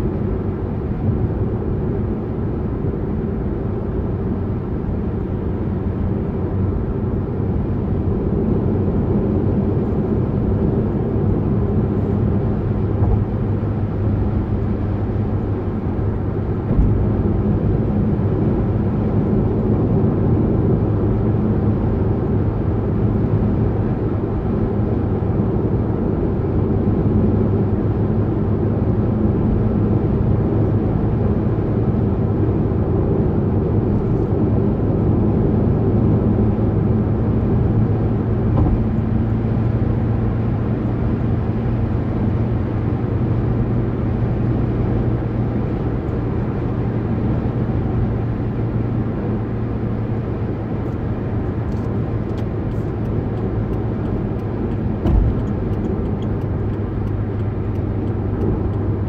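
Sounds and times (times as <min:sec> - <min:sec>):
car engine and tyre noise: 0:00.0 - 0:59.0
low thump: 0:38.5 - 0:39.0, 0:55.0 - 0:55.7.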